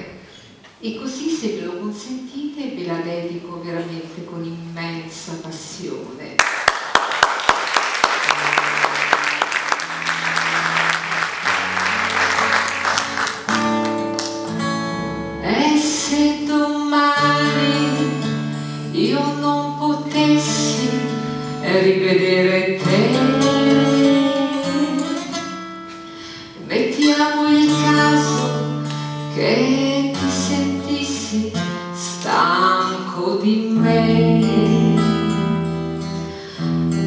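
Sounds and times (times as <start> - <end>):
audience applause: 6.4 - 14.4
instrumental accompaniment: 7.9 - 15.8
woman singing: 15.4 - 25.4, 26.6 - 36.0.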